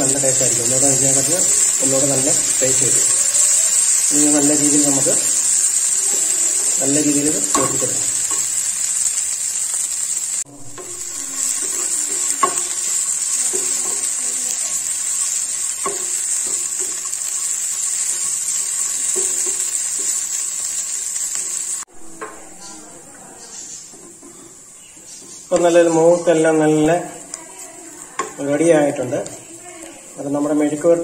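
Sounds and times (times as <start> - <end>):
food sizzling in oil: 0.0 - 31.0
quiet hiss: 21.9 - 31.0.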